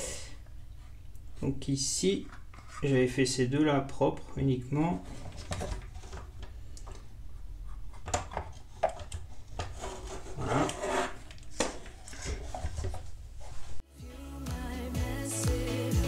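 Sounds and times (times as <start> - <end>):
plastic parts rubbing together: 2.2 - 3.0, 5.0 - 13.8
plastic clicks and scrapes: 7.8 - 13.1.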